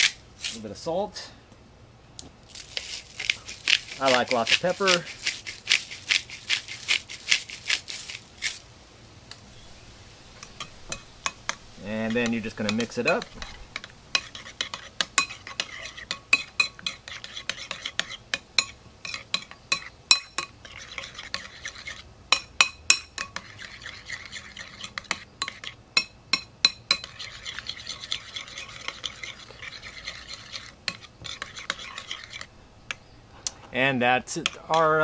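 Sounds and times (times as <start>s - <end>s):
spoon clinking and scraping bowl: 10.4s - 32.5s, 34.3s - 35.0s.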